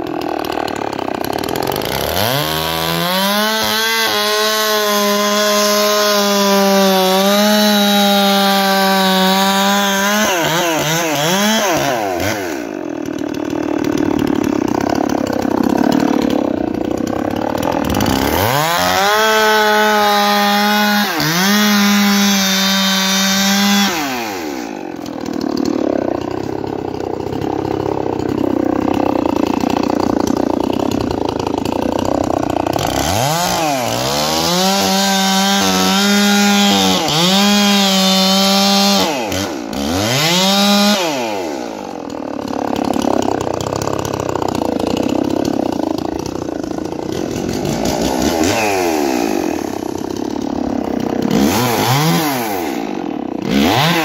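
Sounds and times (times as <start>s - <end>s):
chainsaw cutting wood: 0.0s - 54.0s
chainsaw revving: 0.0s - 54.0s.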